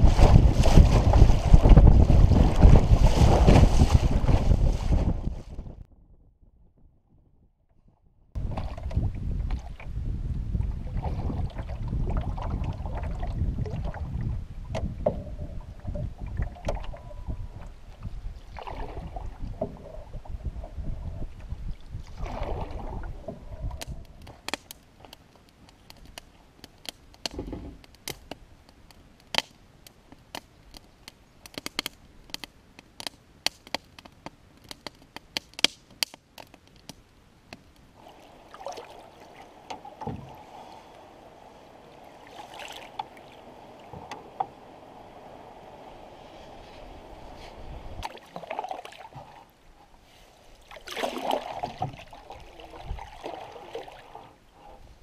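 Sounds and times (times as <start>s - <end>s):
paddle strokes splashing water: 0.0s - 5.2s, 16.4s - 20.0s, 21.4s - 23.7s, 38.0s - 54.9s
water gurgling along canoe: 0.0s - 5.8s, 8.4s - 25.1s, 37.9s - 55.0s
wind rumbling on microphone: 0.0s - 24.6s, 38.0s - 50.1s, 50.8s - 55.0s
wood fire crackling and popping: 23.7s - 38.0s.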